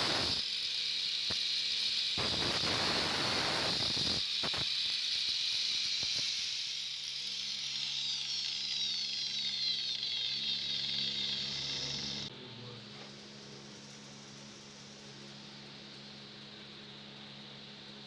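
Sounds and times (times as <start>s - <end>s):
angle grinder grinding steel: 0.0s - 12.3s
angle grinder whine: 0.0s - 18.0s.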